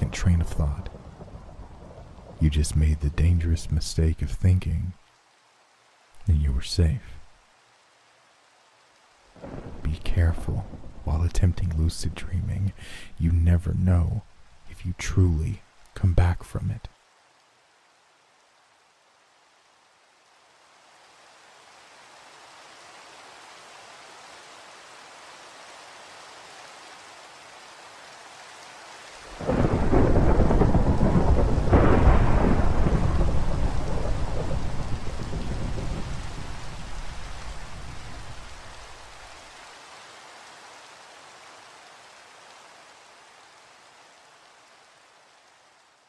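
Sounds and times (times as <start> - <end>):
steady rain: 0.0 - 46.0
low thunder rumble: 9.4 - 13.2, 29.4 - 38.7
thunderclap: 9.4 - 13.2, 29.4 - 38.5.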